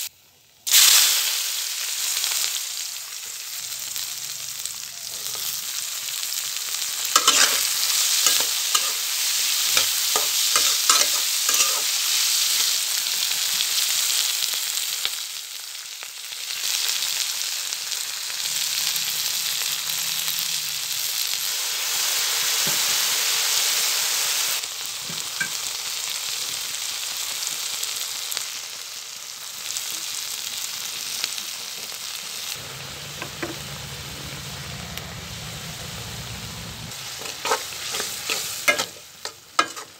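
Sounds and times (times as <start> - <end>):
onions sizzling in oil: 0.0 - 39.9
spatula scraping a wok: 7.0 - 12.7, 32.4 - 39.9.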